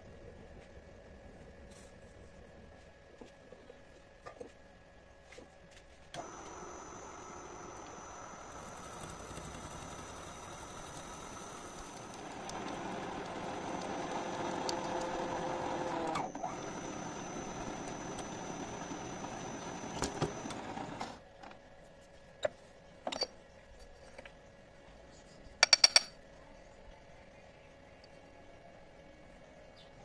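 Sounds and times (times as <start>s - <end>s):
drill press cutting steel: 6.2s - 21.1s.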